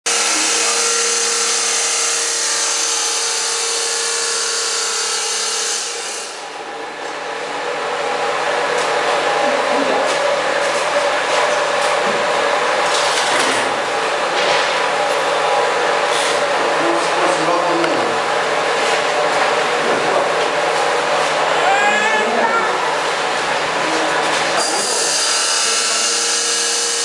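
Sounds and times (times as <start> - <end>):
electric motor humming and whining: 0.1 - 27.0
harsh hissing machine running: 0.1 - 27.0.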